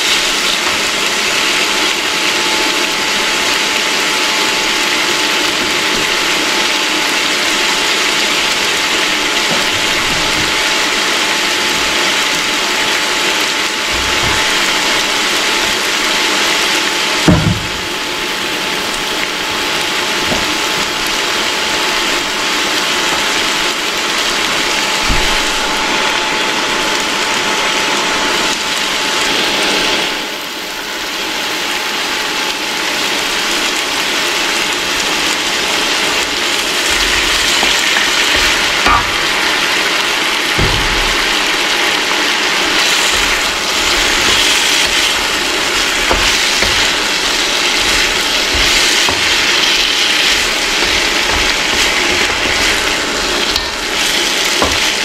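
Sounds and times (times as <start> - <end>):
meat sizzling in hot oil: 0.0 - 55.0
thin steady whine: 0.0 - 55.0
sharp knock: 17.3 - 17.9.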